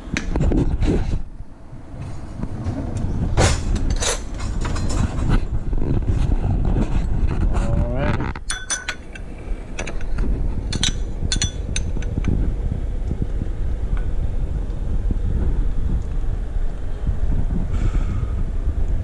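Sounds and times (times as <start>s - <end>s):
steady low rumble: 0.0s - 19.0s
sharp metallic clinks: 8.4s - 9.2s, 10.7s - 12.1s.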